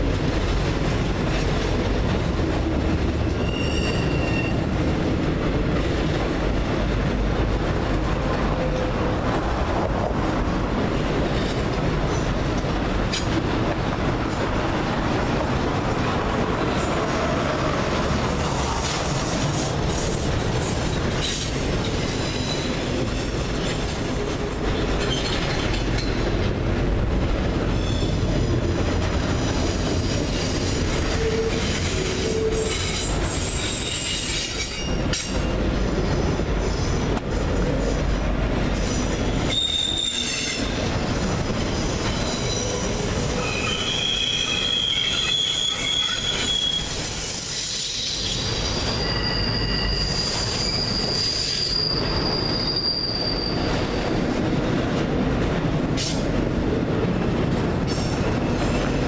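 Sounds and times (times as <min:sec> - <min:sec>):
train wheels rumbling on rail: 0:00.0 - 0:59.0
high wheel squeals: 0:03.3 - 0:04.7, 0:27.7 - 0:28.6, 0:39.4 - 0:40.8, 0:41.7 - 0:54.0.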